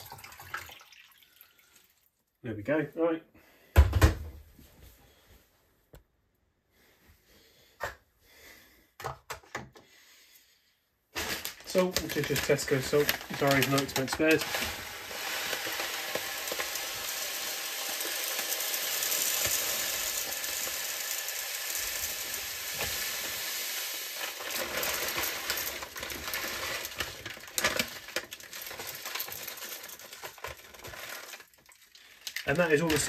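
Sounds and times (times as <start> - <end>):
salt pouring through a funnel: 0.0 - 2.1, 11.2 - 33.0.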